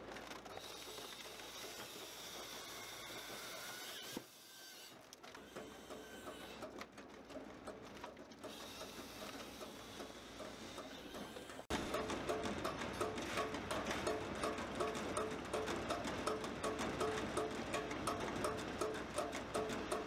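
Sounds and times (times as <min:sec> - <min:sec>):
firewood processor running: 0:00.0 - 0:20.0
mechanical clatter: 0:05.0 - 0:20.0.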